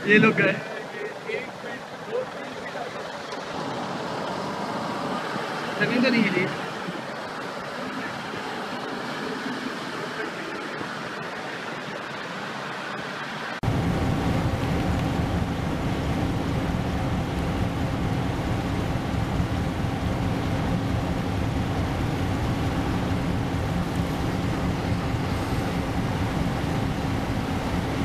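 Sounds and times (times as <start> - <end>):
churning water: 0.0 - 14.7
wind: 0.0 - 28.0.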